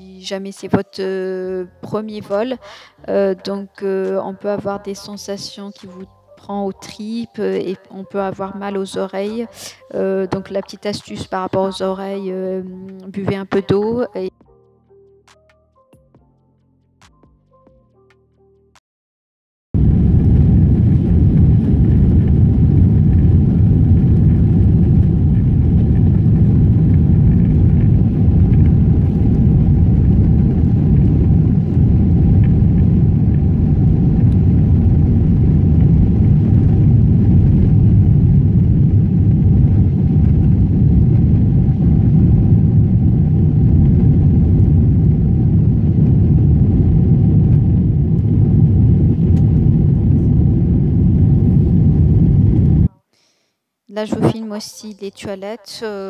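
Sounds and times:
jet engines at takeoff thrust: 19.8 - 52.9
runway rumble: 19.8 - 52.9.

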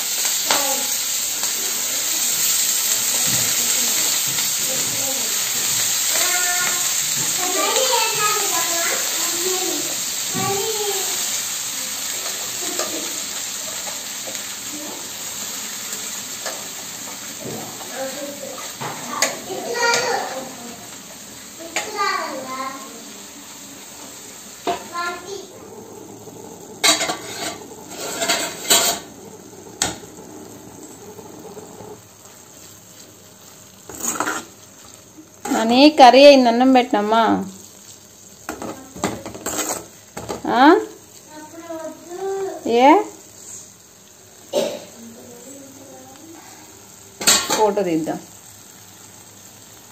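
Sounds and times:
pan sizzling: 0.0 - 49.9
metal spatula scraping a pan: 26.8 - 29.2, 33.9 - 34.6, 39.2 - 40.0.

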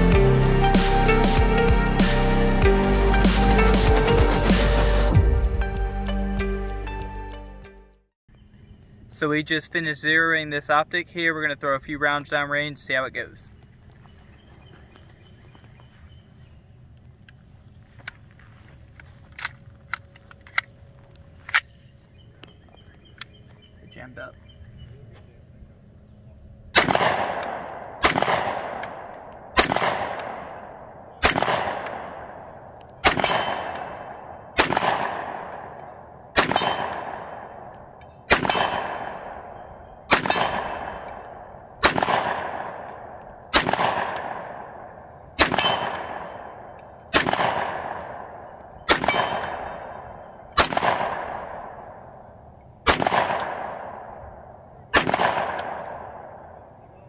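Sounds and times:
gunshots: 26.7 - 52.2, 52.8 - 56.7.

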